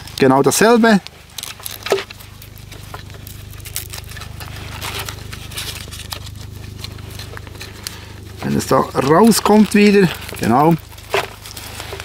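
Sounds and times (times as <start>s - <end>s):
low hum: 0.0s - 12.0s
strap rustling: 0.0s - 12.0s.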